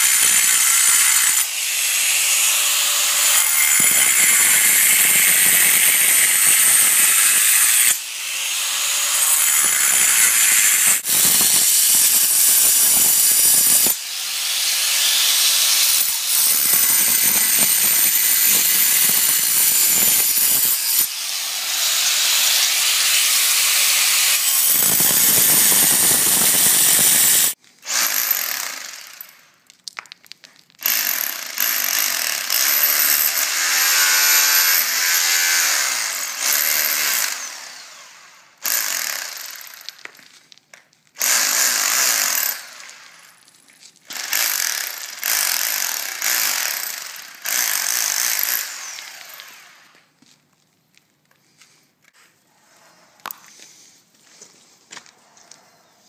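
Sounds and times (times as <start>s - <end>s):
angle grinder cutting concrete: 0.0s - 29.4s, 30.8s - 40.1s, 44.1s - 50.0s
rotary hammer chipping concrete: 0.0s - 37.6s, 38.6s - 40.4s, 44.1s - 49.6s.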